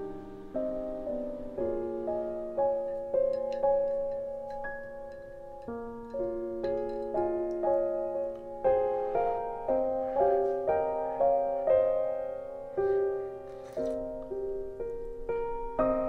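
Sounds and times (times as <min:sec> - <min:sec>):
soft piano piece: 0:00.0 - 0:16.0.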